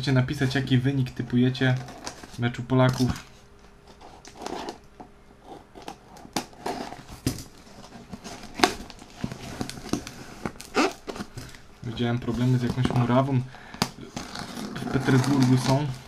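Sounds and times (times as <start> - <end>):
cardboard rustling and crinkling: 0.3 - 4.8, 5.7 - 13.4, 14.0 - 16.0.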